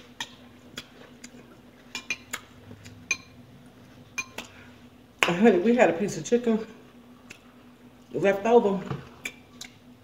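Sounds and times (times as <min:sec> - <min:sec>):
cutlery clinking against a dish: 0:01.9 - 0:02.4.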